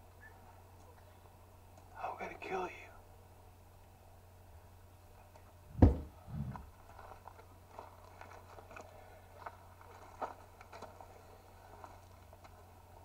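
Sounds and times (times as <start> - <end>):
steady low hum: 0.0 - 13.0
faint scattered clicks: 1.7 - 1.9
heavy low thump: 5.7 - 6.7
softer thud: 5.7 - 6.7.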